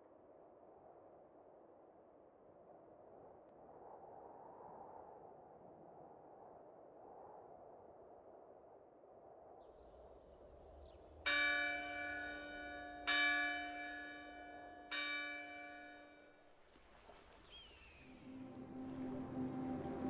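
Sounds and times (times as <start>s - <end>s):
church bell ringing: 11.3s - 16.3s.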